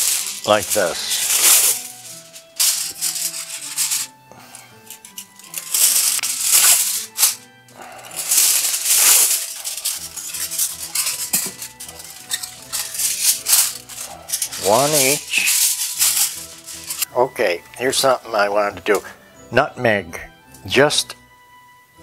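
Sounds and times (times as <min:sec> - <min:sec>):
aluminium foil crinkling: 0:00.0 - 0:17.1
background music: 0:00.0 - 0:22.0.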